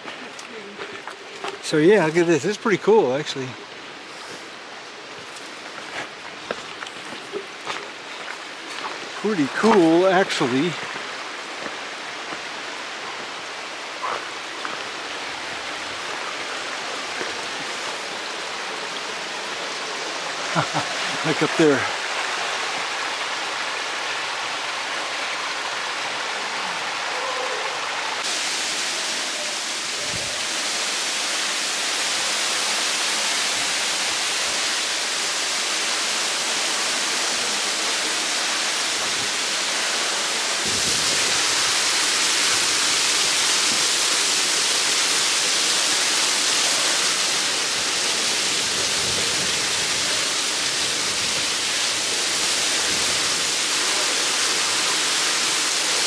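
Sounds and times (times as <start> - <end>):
waterfall splashing onto rock: 20.4 - 26.2, 28.2 - 56.0.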